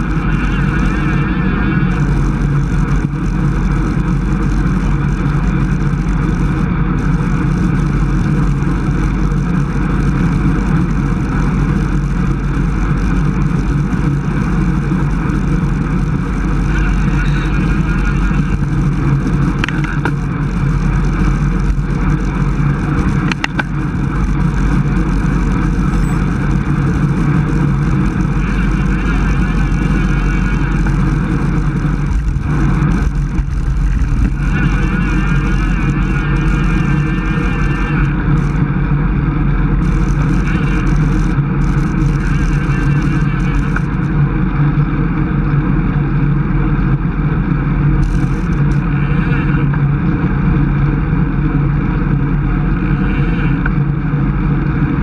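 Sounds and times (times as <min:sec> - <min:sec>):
wind rush on microphone: 0:00.0 - 0:55.0.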